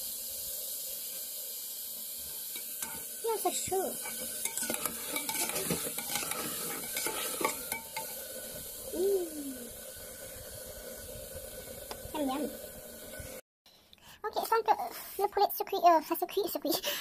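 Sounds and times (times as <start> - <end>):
food sizzling: 0.0 - 13.4
metal spoon scraping a pot: 2.6 - 3.1, 4.0 - 8.2
short voice sound: 8.9 - 9.7.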